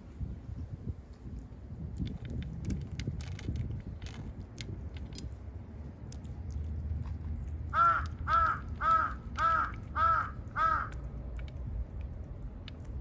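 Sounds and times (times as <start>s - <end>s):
low background rumble: 0.0s - 13.0s
crow cawing: 7.7s - 11.0s.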